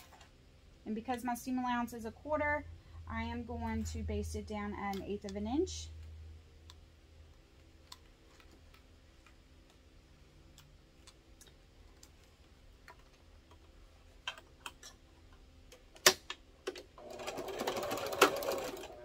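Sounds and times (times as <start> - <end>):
sewing machine stitching: 17.0 - 19.0.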